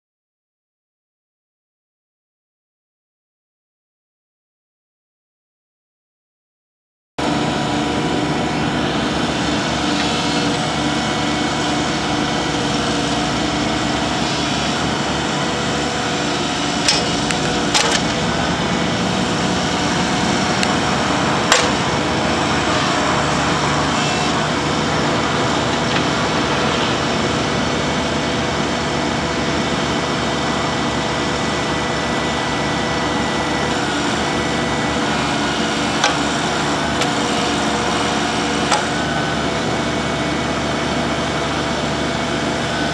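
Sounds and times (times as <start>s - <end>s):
excavator diesel engine running: 7.2s - 42.9s
sharp clicks or knocks: 16.8s - 18.2s, 21.5s - 21.8s.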